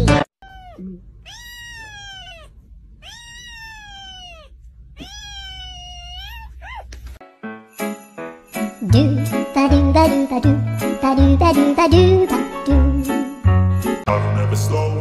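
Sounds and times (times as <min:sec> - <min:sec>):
kitten meowing: 0:00.4 - 0:07.0.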